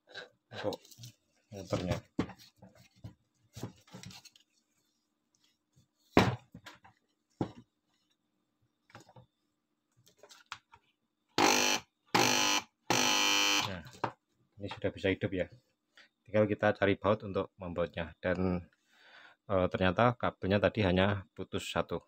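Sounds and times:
spin-dryer motor buzzing: 0:11.4 - 0:13.6.

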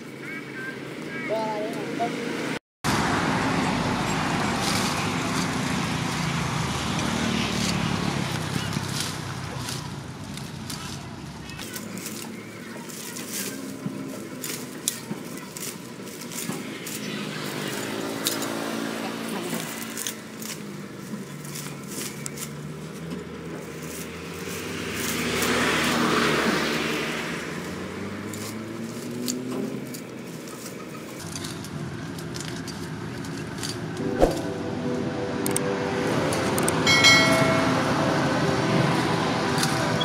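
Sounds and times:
rustling leaves: 0:02.9 - 0:40.0
sickle snapping vines: 0:07.0 - 0:18.9, 0:19.5 - 0:23.1, 0:27.6 - 0:34.5.

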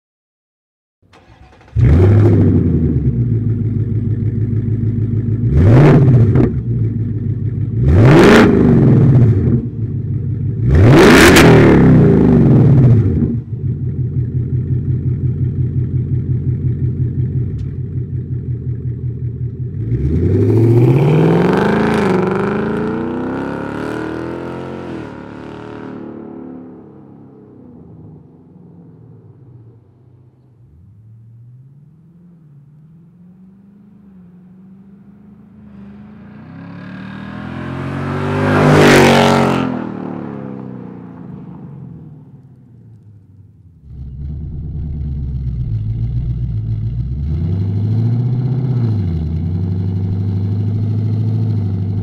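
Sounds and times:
car engine idling: 0:01.0 - 0:05.6, 0:06.6 - 0:07.8, 0:13.3 - 0:19.8, 0:42.4 - 0:48.0, 0:49.0 - 0:52.0
car engine starting: 0:01.0 - 0:25.8, 0:28.9 - 0:52.0
car accelerating away: 0:01.1 - 0:07.0, 0:07.6 - 0:42.6, 0:43.8 - 0:52.0
car engine revving: 0:01.1 - 0:26.2, 0:30.5 - 0:41.4, 0:42.4 - 0:52.0.

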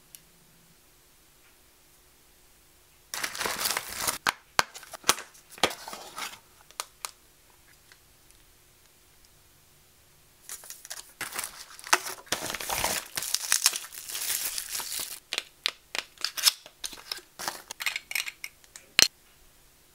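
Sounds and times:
bubble wrap crinkling: 0:03.1 - 0:07.2, 0:10.5 - 0:17.8.

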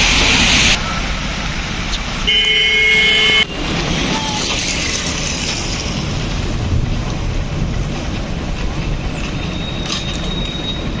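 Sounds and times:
road traffic: 0:00.0 - 0:11.0
wind buffeting microphone: 0:05.1 - 0:11.0.

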